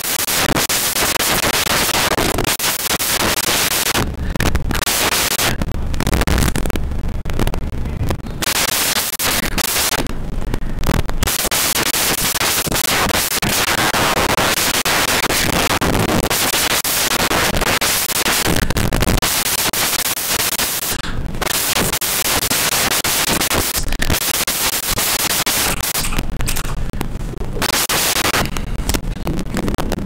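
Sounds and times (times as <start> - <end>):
dense static crackling: 0.0 - 30.0.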